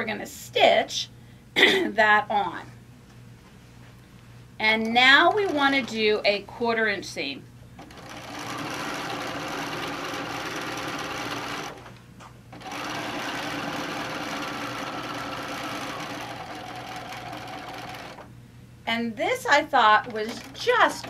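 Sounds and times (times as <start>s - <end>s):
sewing machine stitching: 5.2s - 6.1s, 7.8s - 11.9s, 12.6s - 18.3s, 20.0s - 21.0s.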